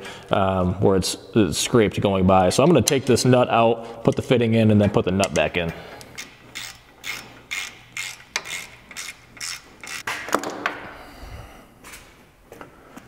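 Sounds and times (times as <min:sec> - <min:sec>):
wrench clicking and scraping: 0:05.2 - 0:10.1.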